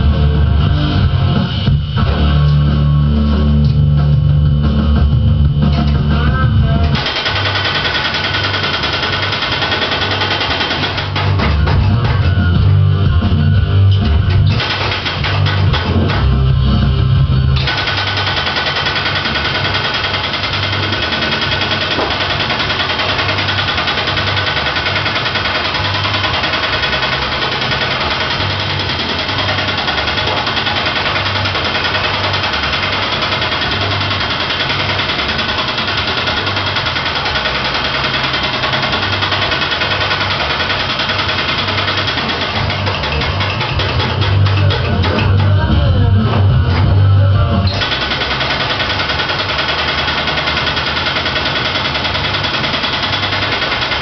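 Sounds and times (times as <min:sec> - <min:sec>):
guitar and bass music: 0:00.0 - 0:07.1, 0:10.9 - 0:19.6, 0:36.5 - 0:48.6
power hammer beating sheet metal: 0:06.8 - 0:12.6, 0:14.2 - 0:16.6, 0:17.6 - 0:45.7, 0:47.7 - 0:54.0.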